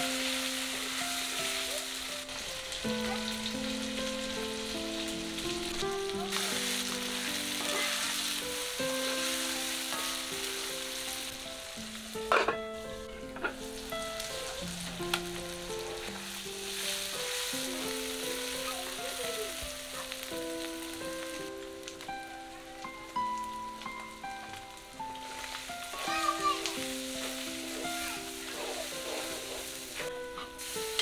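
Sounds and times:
vegetables sizzling in hot oil: 0.0s - 31.0s
wooden spatula stirring: 12.2s - 21.4s, 25.2s - 31.0s.

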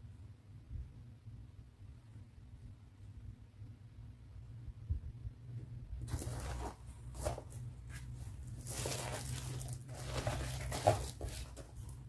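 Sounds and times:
low steady hum: 0.0s - 12.0s
bags rustling and crinkling: 6.0s - 12.0s.

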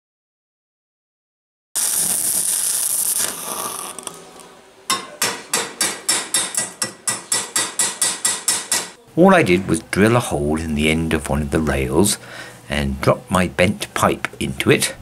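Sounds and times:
arc welding crackling hiss: 1.8s - 4.5s
hammer tapping metal: 4.9s - 9.0s.

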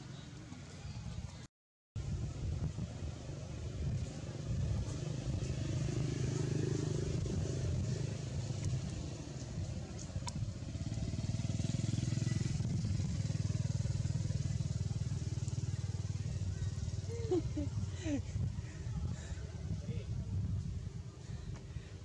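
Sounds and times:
engine droning: 2.1s - 18.2s.

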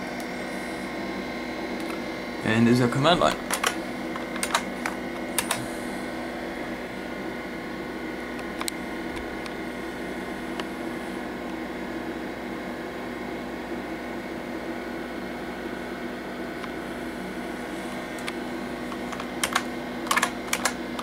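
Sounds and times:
computer fan hum: 0.0s - 21.0s
keyboard key clicks: 3.4s - 5.6s, 18.2s - 21.0s.

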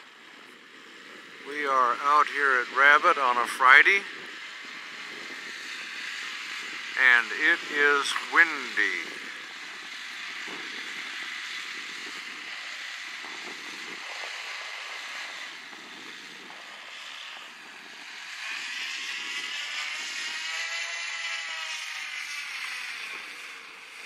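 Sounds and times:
model airplane propeller drone: 0.0s - 24.0s
wind on microphone: 4.1s - 7.0s, 9.0s - 20.6s.

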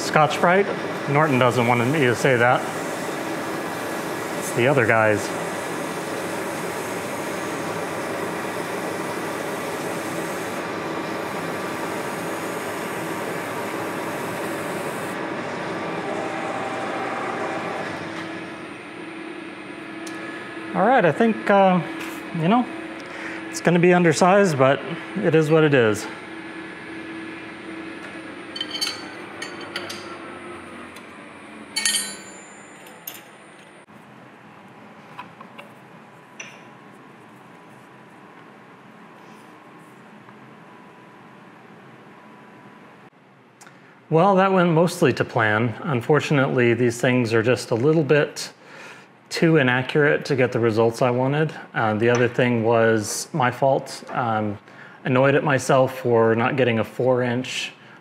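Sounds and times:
metal lathe motor running: 0.0s - 33.2s
abrasive sanding hiss: 1.1s - 15.2s
wrench clinking on metal: 28.6s - 30.1s, 31.8s - 33.3s.

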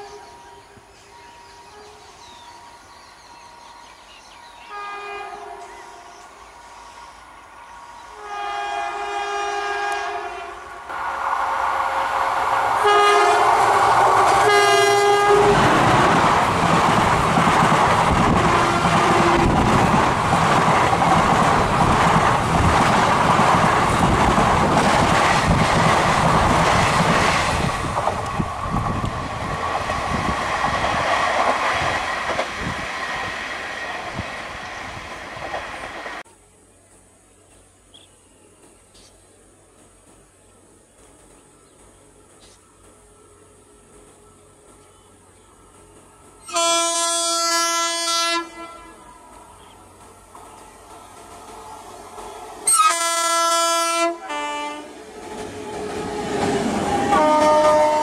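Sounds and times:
locomotive horn blasts: 4.6s - 6.1s, 8.1s - 10.8s, 12.8s - 15.8s, 18.4s - 19.6s, 46.4s - 49.1s, 52.7s - 55.0s, 57.0s - 58.0s
train coaches rushing past: 5.4s - 36.3s, 38.5s - 58.0s.

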